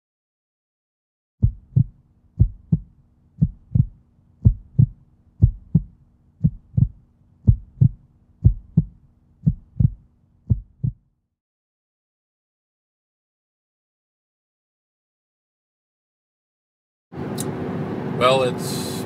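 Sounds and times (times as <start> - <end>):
faint steady hum: 1.4 - 11.0
heartbeat thumps: 1.4 - 11.0.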